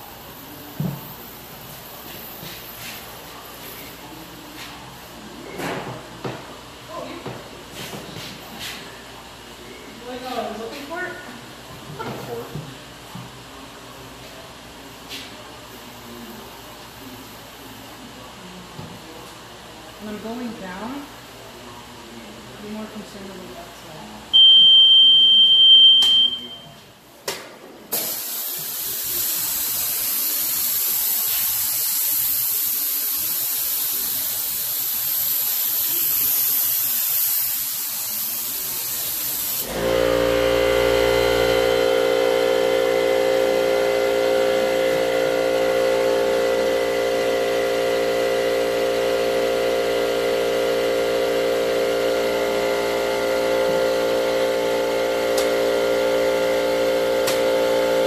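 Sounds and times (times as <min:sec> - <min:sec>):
machine hum: 0:39.6 - 0:58.0.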